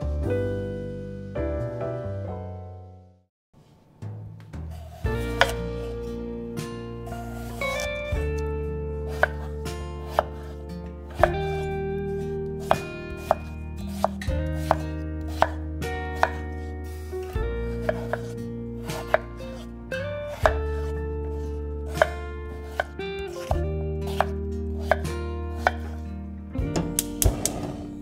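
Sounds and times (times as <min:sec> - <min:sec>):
background music with held notes: 0:00.0 - 0:03.2, 0:04.0 - 0:28.0
knife chopping on cutting board: 0:04.8 - 0:05.6, 0:07.4 - 0:08.4, 0:09.1 - 0:19.7, 0:20.3 - 0:26.0, 0:26.7 - 0:27.8.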